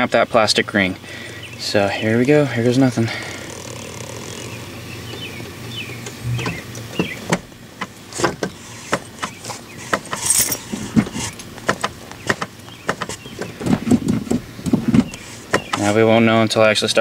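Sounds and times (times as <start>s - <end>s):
clutch pedal clicks and knocks: 3.5s - 10.3s, 10.9s - 15.9s.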